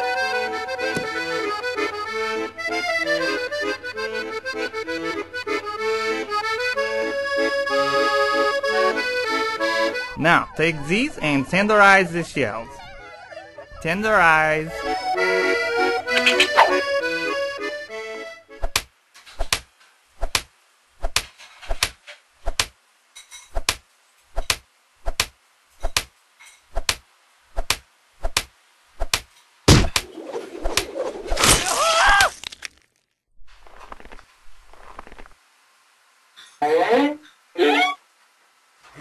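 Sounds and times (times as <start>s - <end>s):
accordion music: 0.0s - 18.6s
cartoon pounding thunks and cracks: 29.1s - 30.1s.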